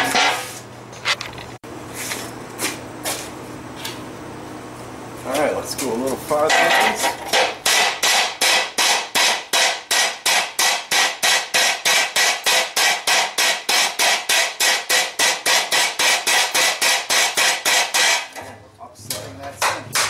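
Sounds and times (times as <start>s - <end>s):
hammer striking hot steel: 6.5s - 18.4s, 19.1s - 20.0s.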